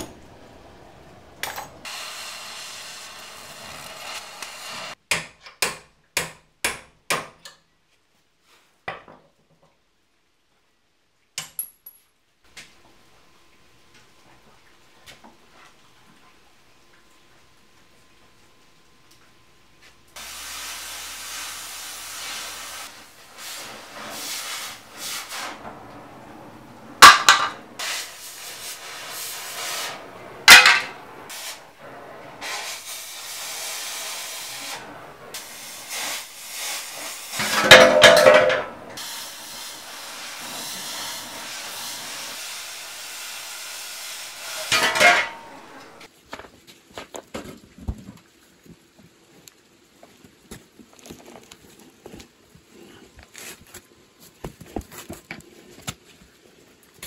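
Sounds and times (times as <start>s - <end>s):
cutting torch hissing: 1.8s - 5.0s, 20.2s - 25.6s, 27.8s - 37.4s, 39.0s - 44.8s.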